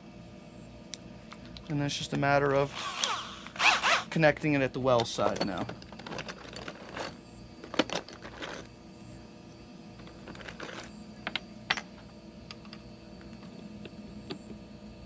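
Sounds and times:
screws rattling in plastic tub: 5.0 - 8.7, 10.0 - 10.9.

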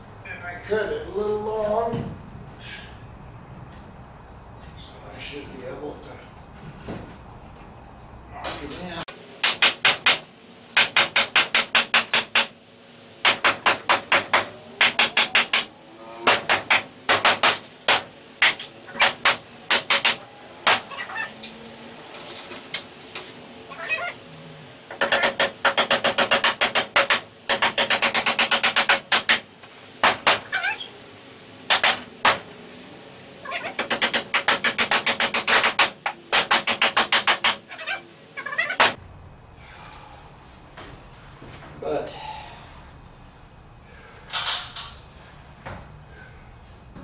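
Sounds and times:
hammer driving nails into wood: 9.4 - 12.6, 13.2 - 15.7, 16.3 - 20.8, 24.9 - 29.4, 31.7 - 32.4, 33.8 - 37.6.

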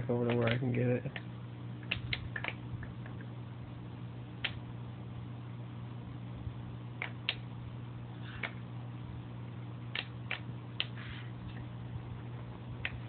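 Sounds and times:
low electrical hum: 0.0 - 13.0
sharp clicks: 0.2 - 2.6, 9.9 - 11.0.

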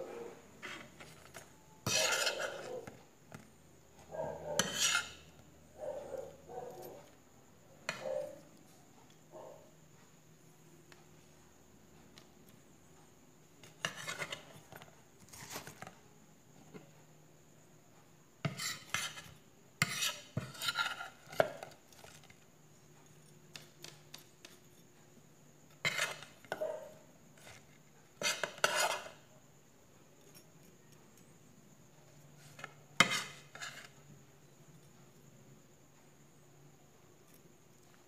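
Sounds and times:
metal spoon scraping a plate: 0.2 - 3.4, 4.4 - 5.5, 13.6 - 15.9, 18.4 - 22.4, 25.7 - 29.3, 32.2 - 34.2.

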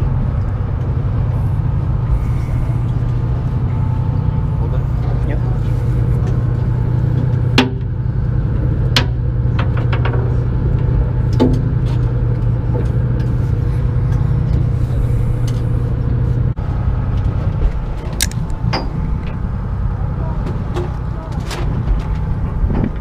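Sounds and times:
boat engine droning: 0.0 - 23.0
fishing tackle clicks: 18.2 - 18.6.

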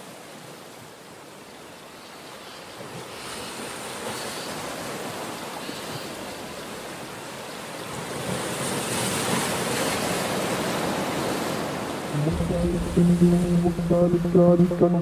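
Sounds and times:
waves breaking on rocks: 2.6 - 12.2.

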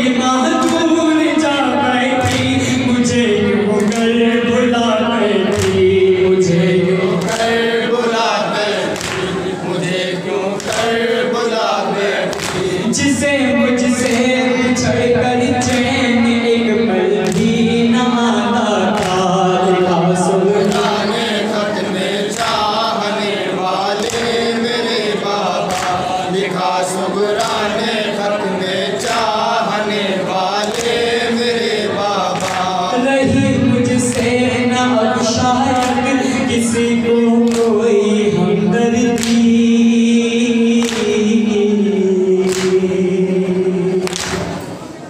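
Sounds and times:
men chanting in unison: 0.0 - 44.6
hands slapping on chests: 8.9 - 9.3, 42.4 - 42.8.

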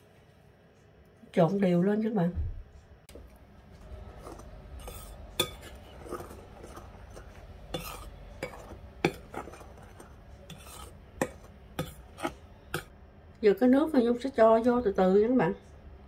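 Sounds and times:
spoon scraping through flour: 3.1 - 12.9.

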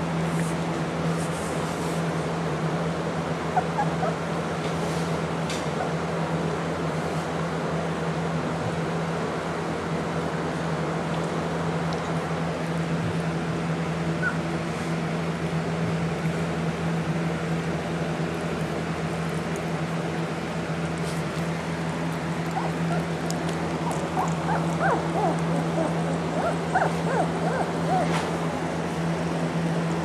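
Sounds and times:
steady low hum: 0.0 - 30.0
puppies whimpering and yipping: 3.5 - 4.4, 14.1 - 14.6, 21.0 - 28.5.

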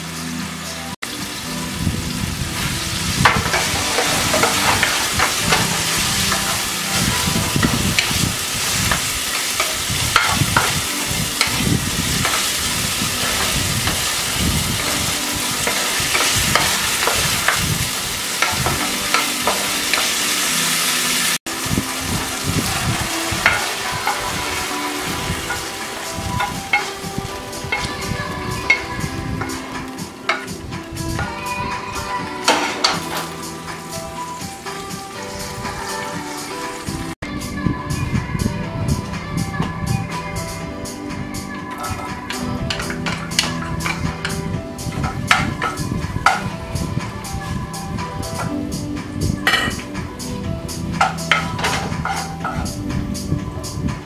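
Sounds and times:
chicken sizzling in hot oil: 0.0 - 54.0
wooden spatula scraping pan: 51.0 - 52.7.

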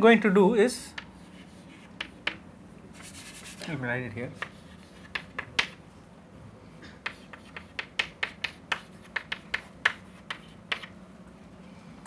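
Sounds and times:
chalk tapping on blackboard: 1.0 - 2.4, 3.0 - 3.7, 4.3 - 5.8, 7.0 - 11.0.

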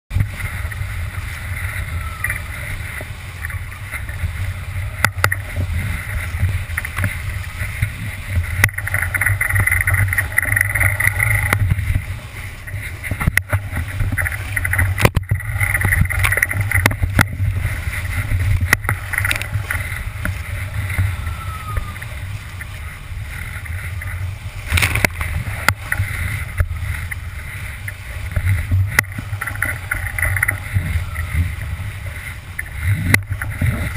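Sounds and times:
water rushing and splashing: 0.1 - 33.9
wind buffeting microphone: 0.1 - 33.9
boat hull knocking on waves: 1.6 - 22.2, 28.2 - 33.9.

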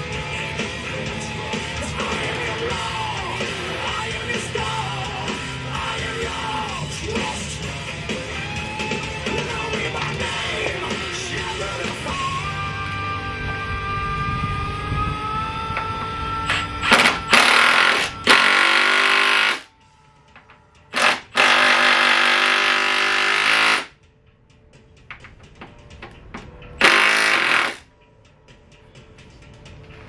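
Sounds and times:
music: 0.0 - 30.0
power tool buzzing rattle: 16.5 - 19.7, 20.9 - 23.9, 26.8 - 27.8.

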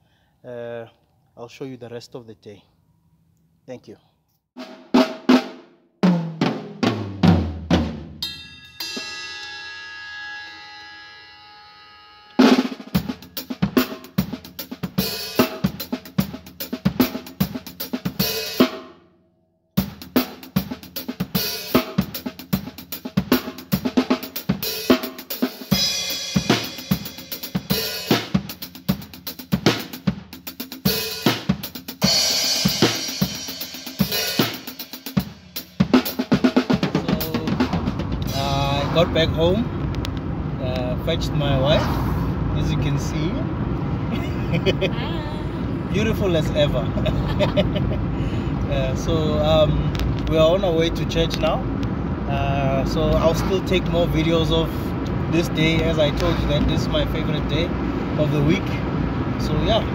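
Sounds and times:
acoustic drum kit playing: 4.6 - 9.6, 12.4 - 18.9, 19.8 - 40.0, 44.6 - 48.1
cymbal ringing: 8.2 - 13.3.

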